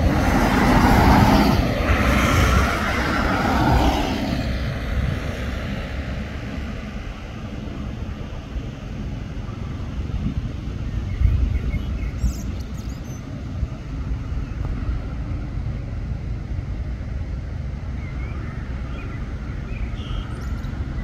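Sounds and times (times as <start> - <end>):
bus and van driving past: 0.0 - 21.0.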